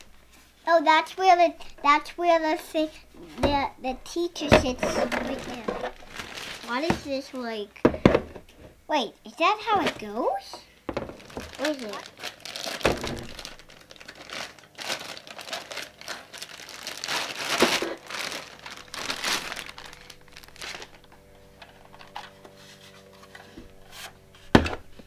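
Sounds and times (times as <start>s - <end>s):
plastic bag crinkling: 4.0s - 7.2s, 10.9s - 22.4s.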